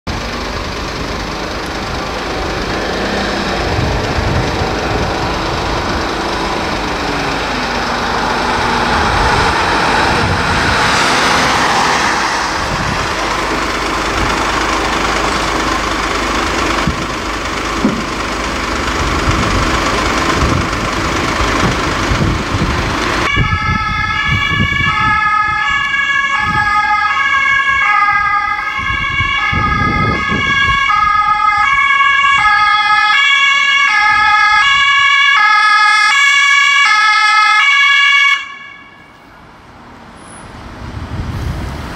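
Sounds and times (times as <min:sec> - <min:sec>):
vehicle engine and road noise: 0:00.0 - 0:41.9
two-tone emergency siren: 0:03.0 - 0:15.2, 0:23.2 - 0:39.4.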